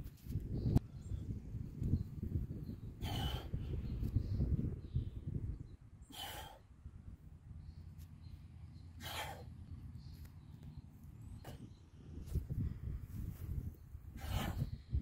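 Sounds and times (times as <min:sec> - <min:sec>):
wind on microphone: 0:00.0 - 0:05.8, 0:11.4 - 0:15.0
man breathing heavily: 0:02.8 - 0:04.5, 0:06.0 - 0:07.2, 0:08.8 - 0:10.2, 0:12.5 - 0:15.0.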